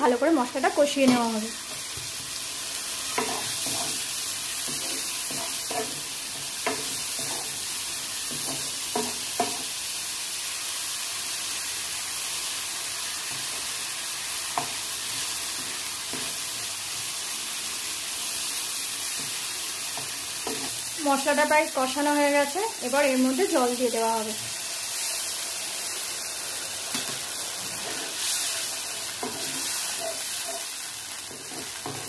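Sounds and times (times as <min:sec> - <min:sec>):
masala sizzling in oil: 0:00.0 - 0:32.0
spatula knocking and scraping pan: 0:03.1 - 0:07.6, 0:08.2 - 0:09.7, 0:19.1 - 0:20.8, 0:29.1 - 0:32.0.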